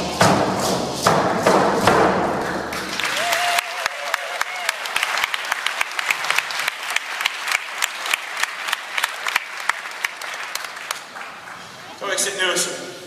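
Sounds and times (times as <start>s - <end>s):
loud close hand claps: 1.9s - 11.7s
audience applauding: 2.7s - 12.3s.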